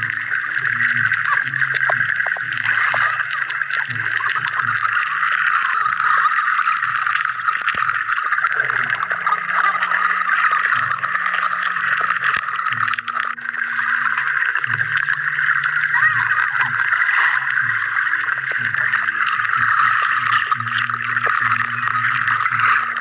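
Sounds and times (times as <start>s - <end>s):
clicks and crackles: 0.0s - 23.0s
low hum shifting pitch: 0.0s - 23.0s
steady underwater hiss: 0.0s - 23.0s.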